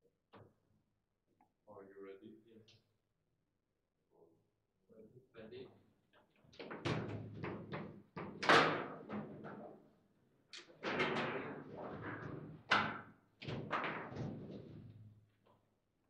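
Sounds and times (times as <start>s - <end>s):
foosball ball knocks and clacks: 6.6s - 9.7s, 10.8s - 14.8s.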